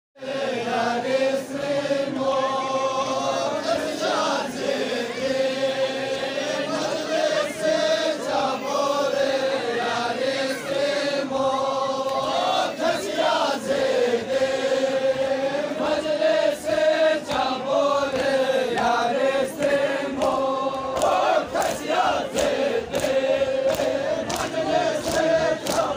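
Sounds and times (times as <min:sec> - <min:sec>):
men chanting a lament: 0:00.2 - 0:25.9
sharp slaps: 0:19.6 - 0:25.9.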